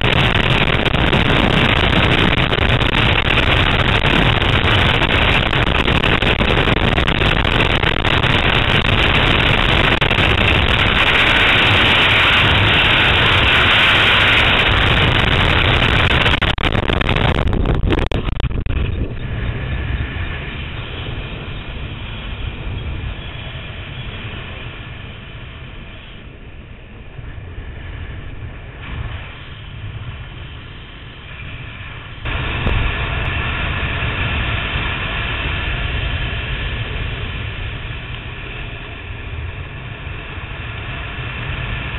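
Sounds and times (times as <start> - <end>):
fluttering wind under canopy: 0.0 - 41.9
freefall wind on microphone: 0.0 - 41.9.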